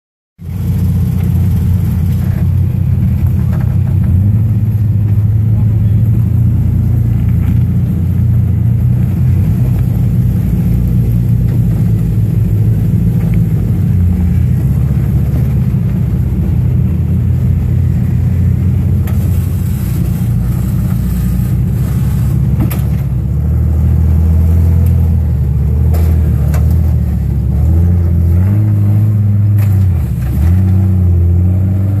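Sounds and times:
engine revving at low revs: 0:00.4 - 0:32.0.

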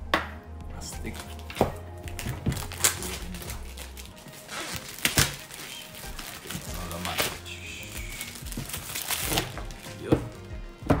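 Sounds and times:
background music with bass line: 0:00.0 - 0:11.0
plastic wrap crinkling: 0:01.1 - 0:10.5
knocks on cardboard box: 0:10.1 - 0:11.0.

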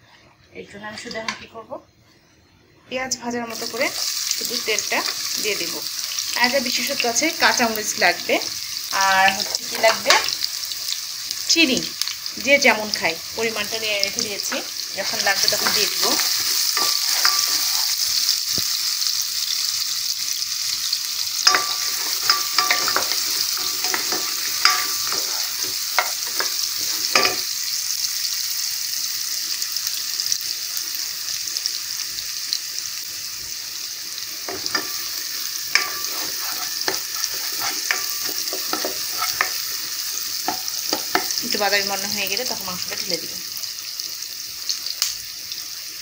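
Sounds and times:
onions sizzling in oil: 0:02.9 - 0:46.0
wooden spatula scraping a pan: 0:14.5 - 0:18.2, 0:21.5 - 0:27.4, 0:35.8 - 0:39.6.

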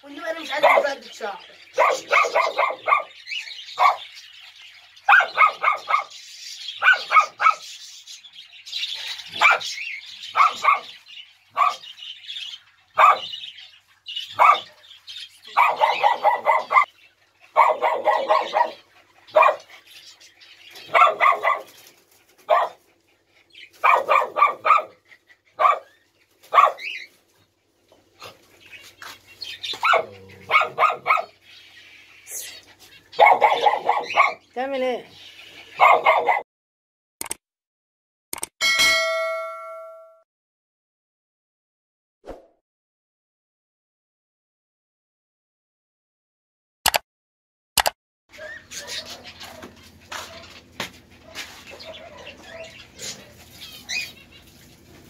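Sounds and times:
small dogs barking: 0:00.4 - 0:04.2, 0:05.0 - 0:06.2, 0:06.8 - 0:07.8, 0:08.9 - 0:12.0, 0:13.0 - 0:13.5, 0:14.3 - 0:19.8, 0:20.7 - 0:27.2, 0:29.5 - 0:31.4, 0:33.0 - 0:34.6, 0:35.6 - 0:36.5, 0:48.4 - 0:54.1.

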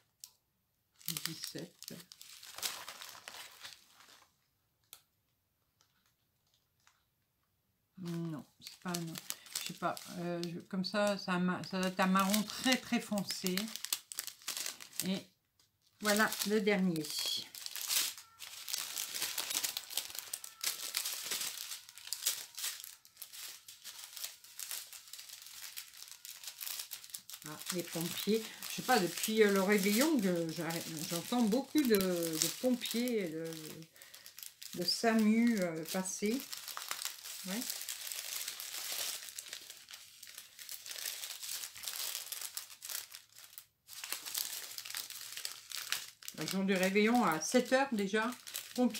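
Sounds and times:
plastic bags crinkling: 0:01.0 - 0:05.0, 0:05.8 - 0:07.0, 0:08.0 - 0:48.9.

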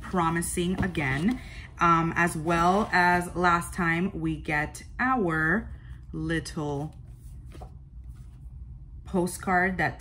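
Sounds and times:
low steady hum: 0:00.0 - 0:10.0
paper and card rustling: 0:06.7 - 0:08.4.

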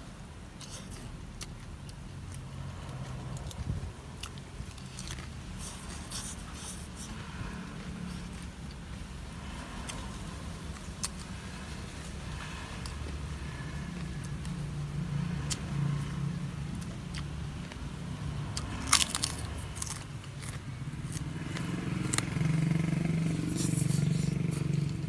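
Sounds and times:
crunching of fried cracker: 0:18.6 - 0:22.3.

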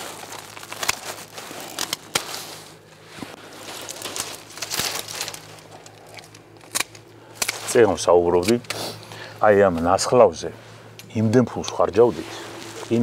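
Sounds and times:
pruning shears snipping: 0:00.0 - 0:10.0
branches rustling: 0:00.0 - 0:13.0.

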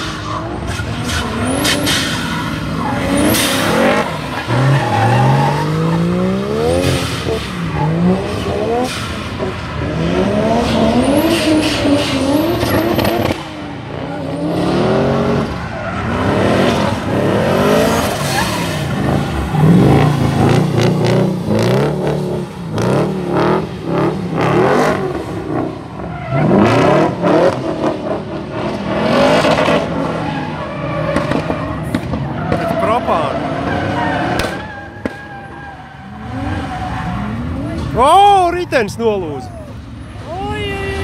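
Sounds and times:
tyres squealing on tarmac: 0:00.0 - 0:09.5, 0:15.4 - 0:21.2, 0:30.0 - 0:41.0
car engines revving hard: 0:00.0 - 0:41.0.

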